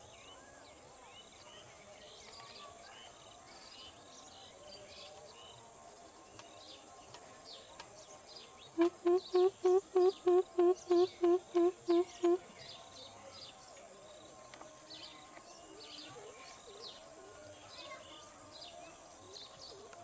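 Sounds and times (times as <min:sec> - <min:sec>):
small birds chirping: 0:00.0 - 0:20.0
bird giving deep hooting call: 0:08.8 - 0:12.4.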